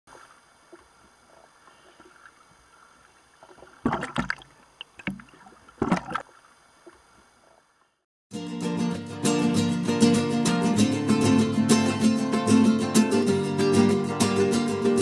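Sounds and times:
seawater splashing: 0.1s - 7.6s.

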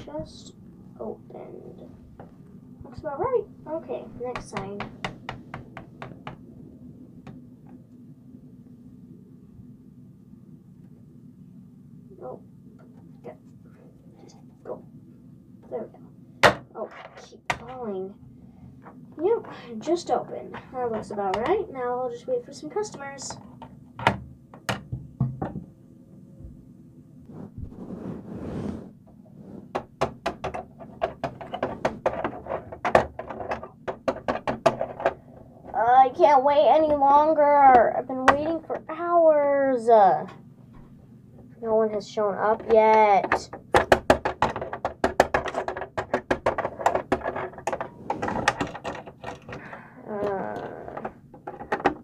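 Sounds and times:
toy figure tapping on plastic: 42.6s - 47.9s.

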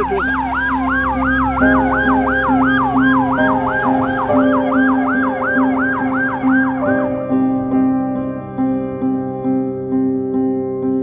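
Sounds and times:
fire truck siren yelping: 0.0s - 8.0s
siren wailing slowly: 0.0s - 9.3s
soft piano music: 0.0s - 11.0s.

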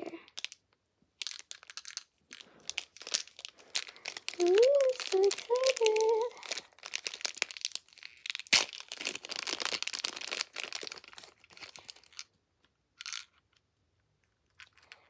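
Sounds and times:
plastic bag crinkling: 0.0s - 0.6s, 1.2s - 12.4s.

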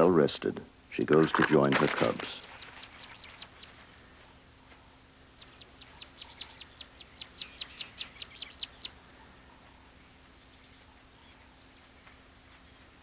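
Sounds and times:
bird chirping rapidly: 2.4s - 3.8s, 5.4s - 11.6s.

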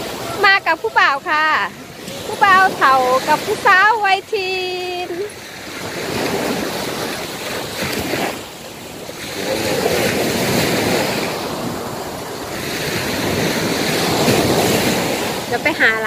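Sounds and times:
small waves breaking on sand: 0.0s - 16.0s
wind buffeting microphone: 0.0s - 16.0s.

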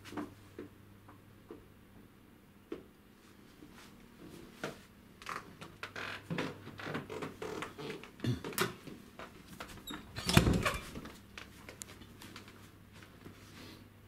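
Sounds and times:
door pushed open by handle: 9.9s - 11.0s.

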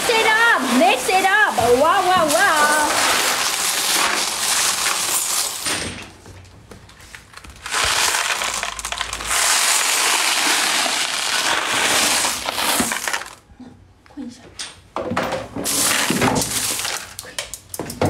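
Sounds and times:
small stones clattering and grinding: 1.7s - 5.9s, 7.3s - 13.4s, 15.6s - 17.2s.

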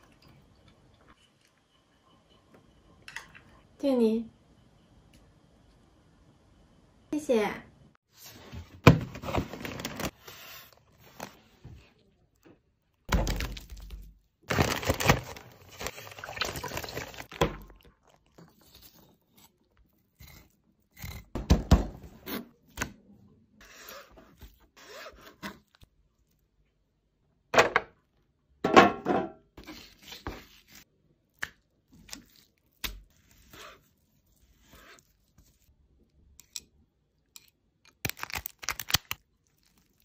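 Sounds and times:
knife scraping through fish: 33.1s - 35.6s.

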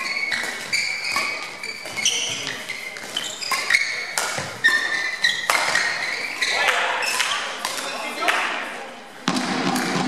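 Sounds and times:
racket hitting shuttlecock: 0.0s - 7.9s
shoes squeaking on court: 0.0s - 8.1s.

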